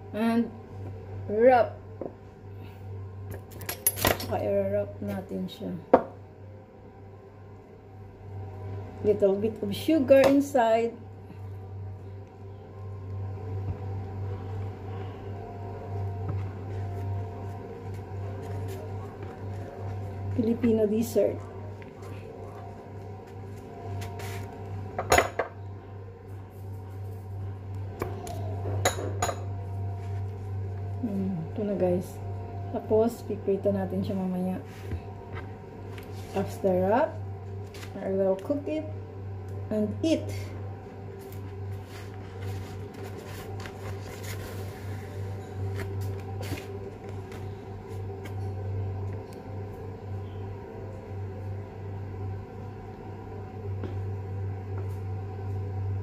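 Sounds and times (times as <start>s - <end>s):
low hum: 0.0s - 56.0s
paper wrappers rustling: 41.8s - 47.6s.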